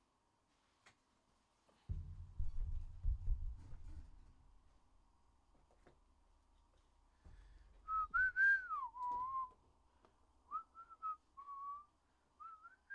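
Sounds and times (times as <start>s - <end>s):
person whistling a tune: 7.8s - 9.6s, 10.5s - 12.9s.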